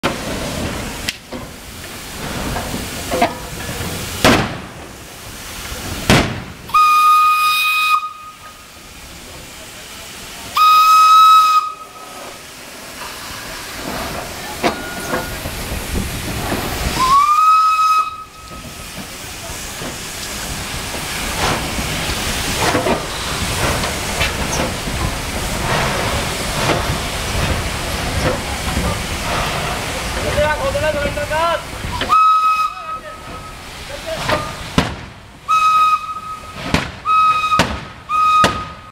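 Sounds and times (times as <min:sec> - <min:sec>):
locomotive exhaust beats: 0:00.0 - 0:38.9
steam hissing: 0:00.0 - 0:38.9
steam whistle blasts: 0:06.7 - 0:08.7, 0:10.6 - 0:12.0, 0:17.0 - 0:18.6, 0:32.0 - 0:33.5, 0:35.5 - 0:38.9.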